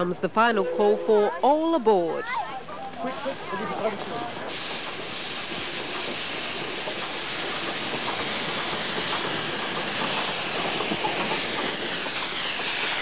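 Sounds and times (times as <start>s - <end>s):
steam locomotive hissing steam: 3.1s - 13.0s.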